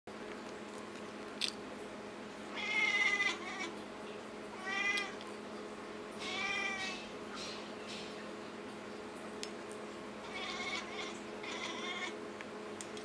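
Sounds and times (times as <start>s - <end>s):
cat meowing: 2.5s - 3.8s, 4.6s - 5.2s, 6.2s - 7.1s, 10.2s - 12.2s.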